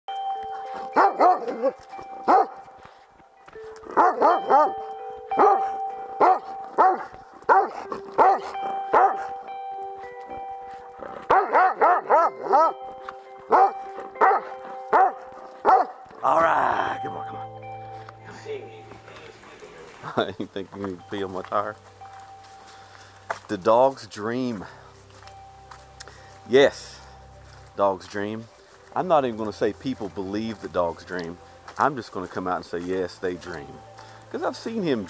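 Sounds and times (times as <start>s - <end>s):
dog barking: 0.9s - 2.6s, 3.9s - 9.3s, 11.2s - 12.8s, 13.5s - 16.0s.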